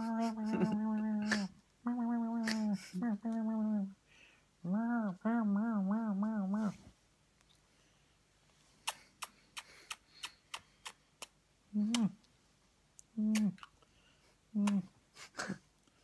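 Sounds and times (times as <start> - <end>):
man humming mm: 0.0 - 3.9, 11.7 - 12.2
wet mouth clicks and lip smacks: 8.8 - 12.1, 13.0 - 13.9.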